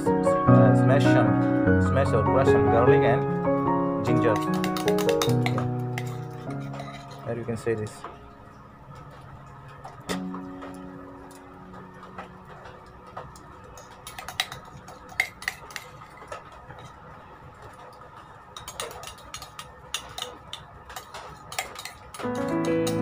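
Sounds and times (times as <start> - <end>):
music: 0.0 - 14.8, 22.1 - 23.0
metal spoon clinking on container: 4.3 - 7.3.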